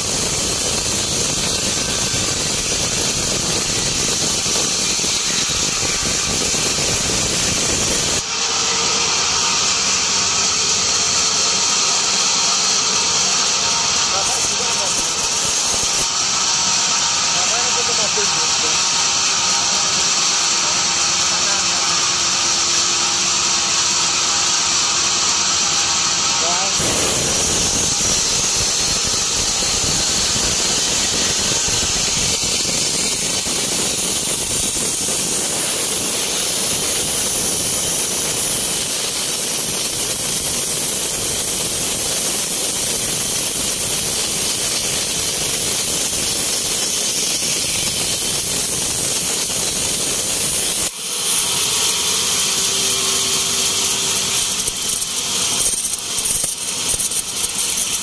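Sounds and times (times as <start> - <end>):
band saw cutting log: 0.0 - 58.0.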